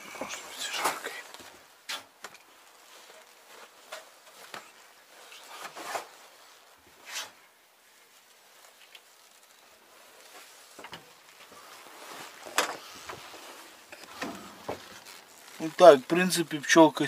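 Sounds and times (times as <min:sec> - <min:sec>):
cloth rustling and scraping: 0:00.0 - 0:16.8.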